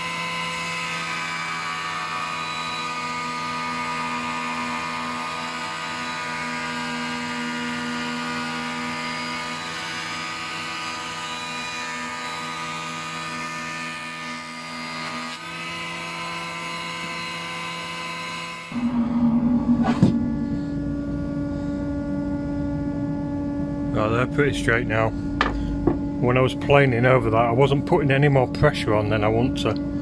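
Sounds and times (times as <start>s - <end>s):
jointer planing wood: 0.0s - 19.0s.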